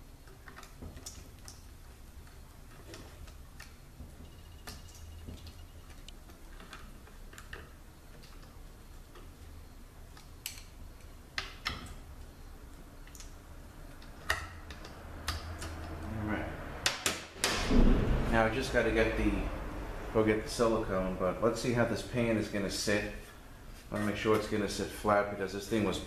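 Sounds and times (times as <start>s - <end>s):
low steady hum: 0.0s - 26.0s
sharp knocks: 16.8s - 18.4s.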